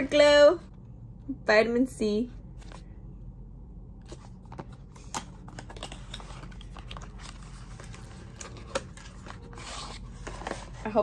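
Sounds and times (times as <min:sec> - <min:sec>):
paperboard box being opened: 0:04.1 - 0:11.0.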